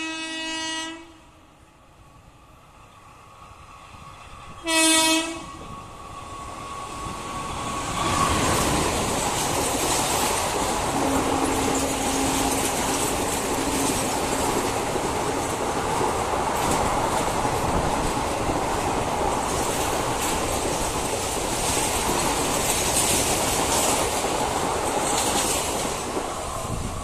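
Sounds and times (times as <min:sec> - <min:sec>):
train coaches rushing past: 0:01.6 - 0:27.0
wheels clattering over rail joints: 0:08.1 - 0:26.9.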